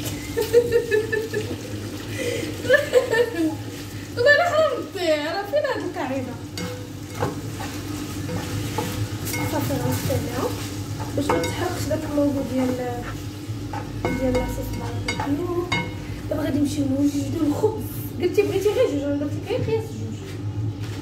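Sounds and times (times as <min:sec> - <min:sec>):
food sizzling in a frying pan: 0:00.0 - 0:19.6
spatula scraping and knocking pan: 0:06.4 - 0:16.5.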